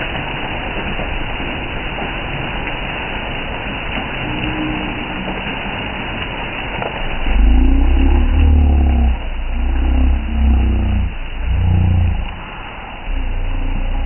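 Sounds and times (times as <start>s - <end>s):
heavy rain on pavement: 0.0s - 14.0s
low rumble with hum: 3.7s - 14.0s.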